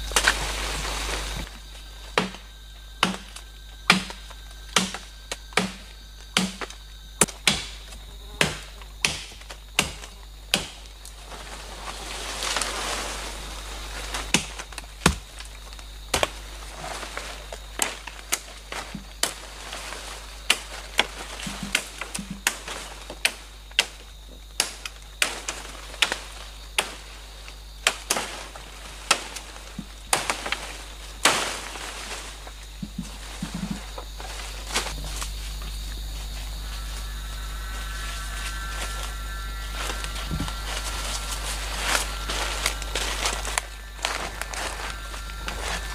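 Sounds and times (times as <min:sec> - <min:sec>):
blade chopping saplings: 0:00.0 - 0:11.6, 0:13.9 - 0:36.0
rustle of leaves and branches: 0:00.0 - 0:45.9.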